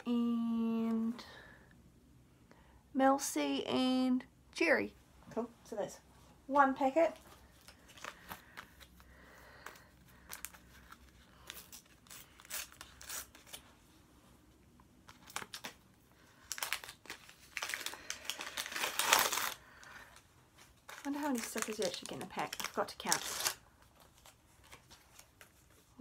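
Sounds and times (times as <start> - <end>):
sticker packet tearing: 10.3 - 13.6, 16.4 - 19.9, 20.8 - 23.6.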